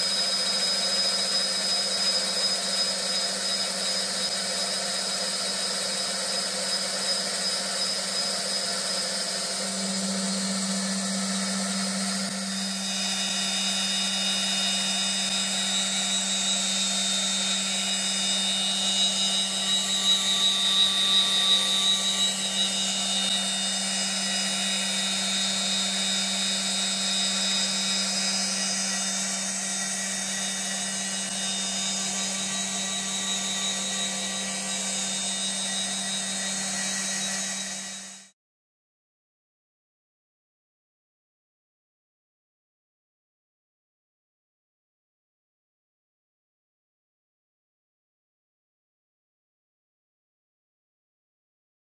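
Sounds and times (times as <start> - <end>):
blade cutting wood: 0.0 - 38.3
lathe spindle whining: 0.0 - 38.3.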